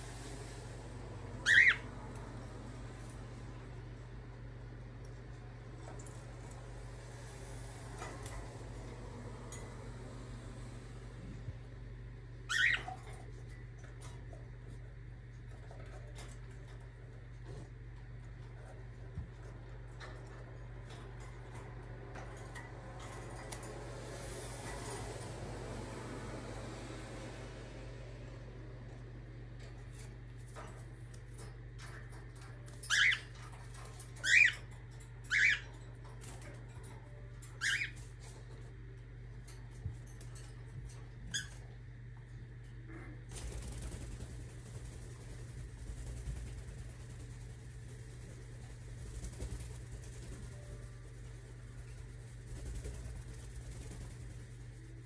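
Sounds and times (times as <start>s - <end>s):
steady low hum: 0.0s - 55.0s
cockatiel chirp: 1.4s - 1.8s.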